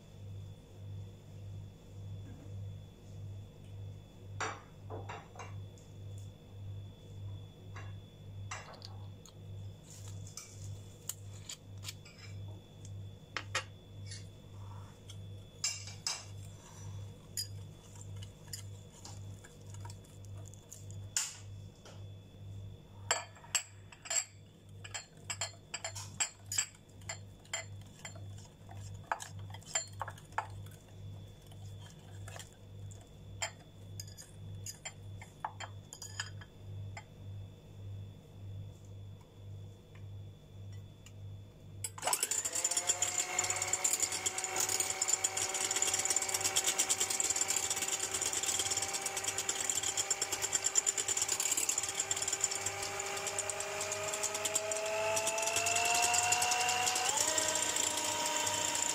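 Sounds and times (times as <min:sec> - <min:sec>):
whisk clinking against glass bowl: 0:23.9 - 0:30.6.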